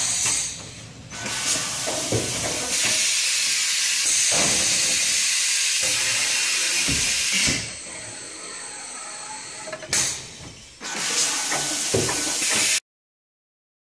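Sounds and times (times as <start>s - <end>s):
pneumatic air hissing: 0.0s - 12.8s.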